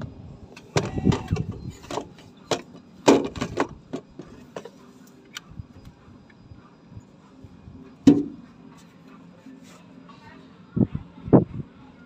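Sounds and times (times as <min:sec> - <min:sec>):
plastic parts clicking and knocking: 0:00.8 - 0:04.7.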